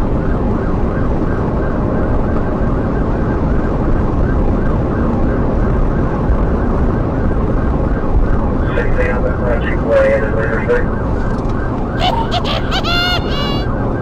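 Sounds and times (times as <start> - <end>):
road and wind noise: 0.0 - 14.0
police siren yelping: 10.7 - 14.0.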